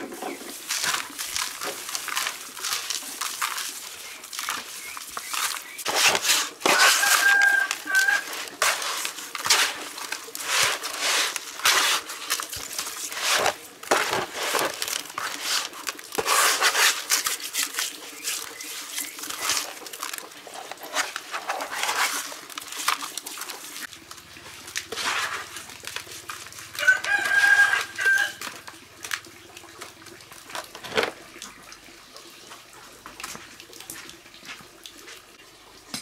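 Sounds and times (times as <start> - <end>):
hands squishing raw meat: 0.3 - 30.8.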